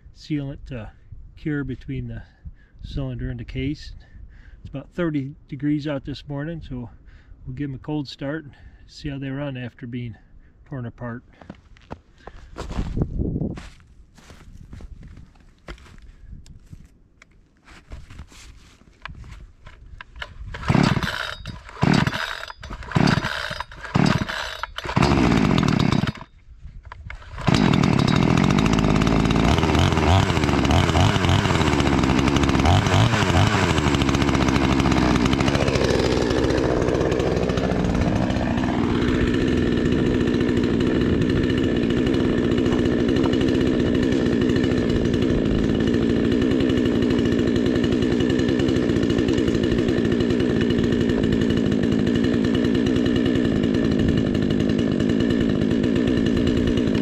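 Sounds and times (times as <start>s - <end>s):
chainsaw starting and running: 19.6s - 57.0s.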